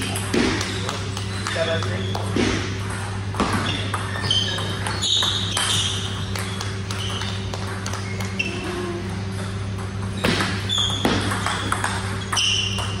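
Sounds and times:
steady low hum: 0:00.0 - 0:13.0
table tennis ball clicks: 0:10.4 - 0:13.0.

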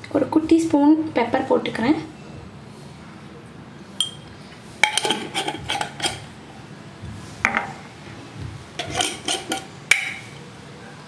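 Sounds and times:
spoon clinking on containers: 0:04.0 - 0:06.2.

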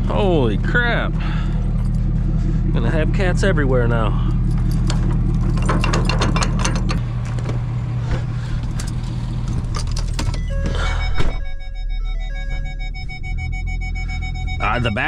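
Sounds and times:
truck engine idling: 0:00.0 - 0:15.0
metal clinking and rattling: 0:04.4 - 0:07.6, 0:08.6 - 0:10.7.

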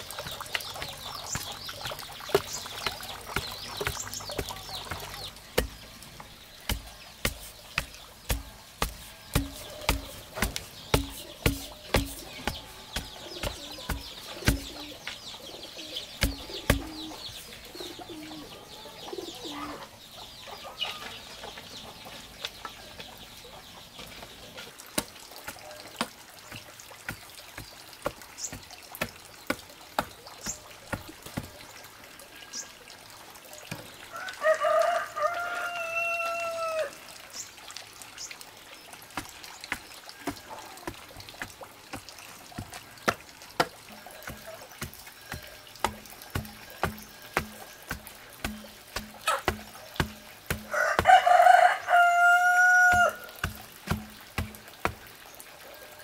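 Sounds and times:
bamboo pole thudding into soil: 0:06.6 - 0:14.9, 0:16.2 - 0:17.1
rooster crowing: 0:34.1 - 0:36.9, 0:50.7 - 0:53.3.

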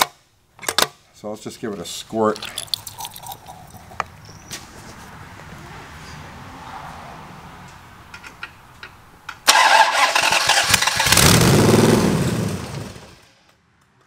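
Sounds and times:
engine cranking and starting: 0:09.4 - 0:13.1.

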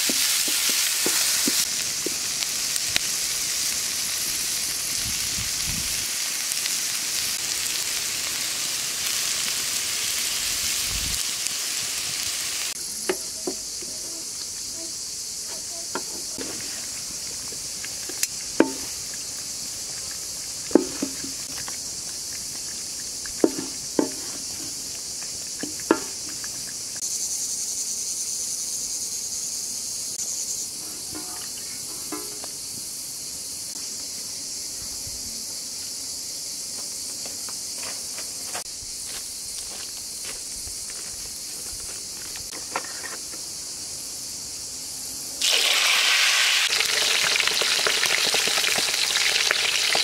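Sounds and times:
loud high hiss: 0:00.0 - 0:21.9, 0:45.3 - 0:50.0
crickets chirping: 0:00.0 - 0:50.0
wooden spatula clacking on pan: 0:23.4 - 0:24.4, 0:25.6 - 0:26.6.

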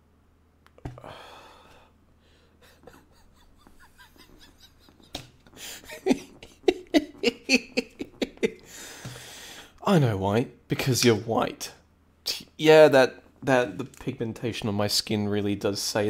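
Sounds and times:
sharp breath out: 0:00.9 - 0:02.6, 0:08.6 - 0:09.8
breathy laughter: 0:02.6 - 0:08.9.

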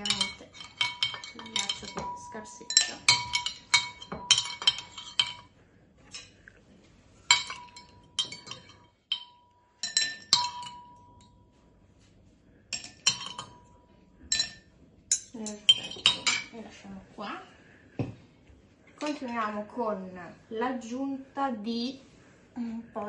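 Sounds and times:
cutlery clinking on glass and plate: 0:00.0 - 0:05.5, 0:07.2 - 0:11.3, 0:12.8 - 0:16.5
glass ringing: 0:00.0 - 0:05.5, 0:07.3 - 0:11.6, 0:12.7 - 0:16.5.

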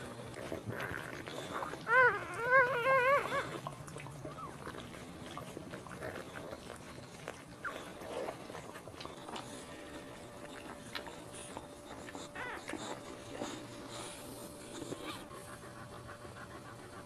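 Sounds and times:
faint puppy squeaks: 0:00.9 - 0:04.9, 0:10.4 - 0:15.5
puppy squealing: 0:01.8 - 0:03.6, 0:12.2 - 0:13.0.

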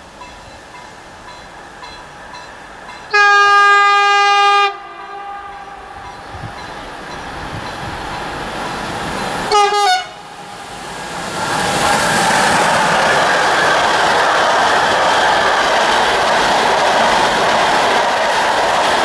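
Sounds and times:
freight train rumble: 0:00.0 - 0:19.0
electric locomotive horn blasts: 0:03.1 - 0:06.6, 0:09.5 - 0:10.6.

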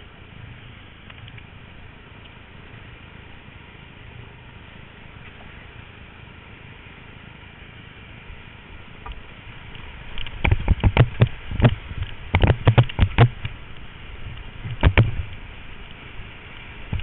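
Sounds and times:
rushing whitewater: 0:00.0 - 0:17.0
paddle splashing against boat: 0:09.8 - 0:17.0.

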